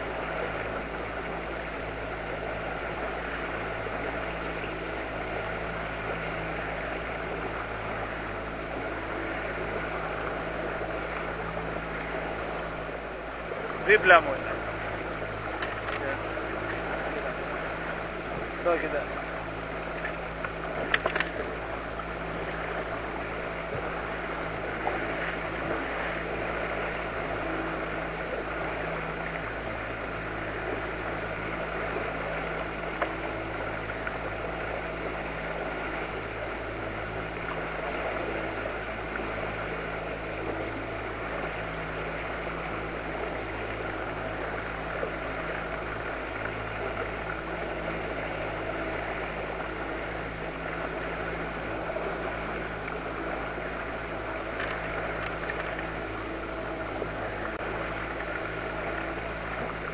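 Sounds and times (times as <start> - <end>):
outboard motor droning: 0.0 - 59.9
water rushing past hull: 0.0 - 59.9
sharp clicks: 54.6 - 55.8.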